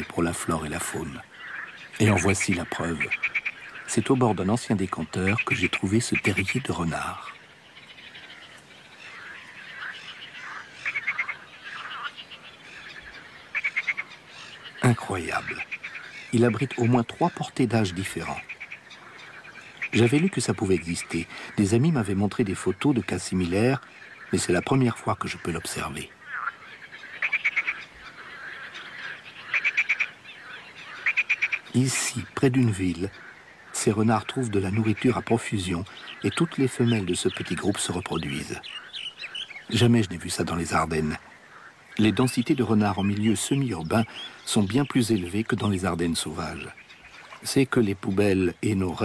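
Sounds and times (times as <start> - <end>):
frog rapid rattling pulses: 0.0 - 45.0
frogs calling: 0.0 - 49.0.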